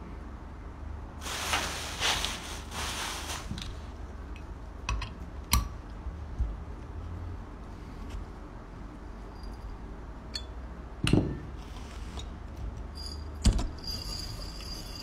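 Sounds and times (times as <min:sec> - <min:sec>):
noisy hiss: 0:00.0 - 0:05.6.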